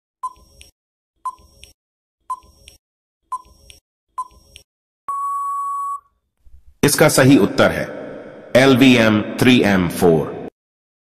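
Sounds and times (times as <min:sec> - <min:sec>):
long steady beep: 0:05.1 - 0:06.2
short beeps: 0:05.1 - 0:06.2.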